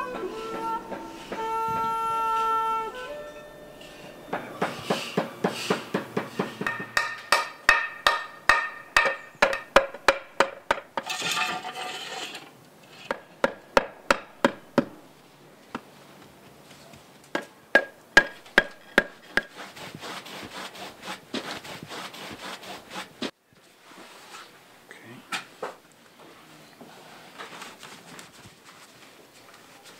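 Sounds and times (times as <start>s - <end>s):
faint brushing: 0.0s - 6.8s, 19.2s - 24.6s, 26.2s - 29.9s
hammer tapping on tiles: 4.6s - 11.0s.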